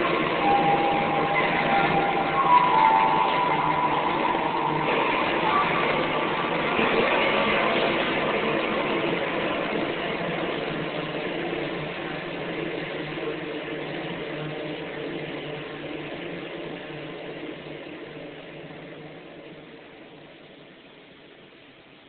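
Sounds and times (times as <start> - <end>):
low hum: 0.0 - 12.5
electronic noise drone: 0.0 - 18.5.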